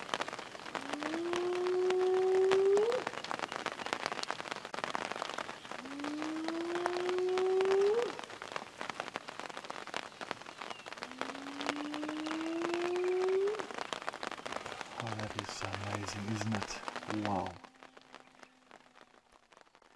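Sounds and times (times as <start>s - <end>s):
rain pattering on roof: 0.0s - 19.9s
hyena whooping: 5.8s - 8.2s, 11.2s - 13.7s.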